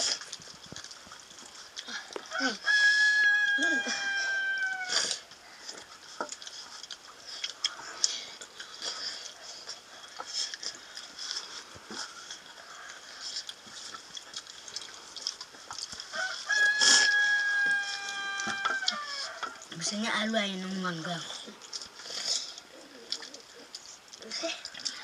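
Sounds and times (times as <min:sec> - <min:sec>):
rooster crowing: 0:02.3 - 0:05.2, 0:16.1 - 0:19.6.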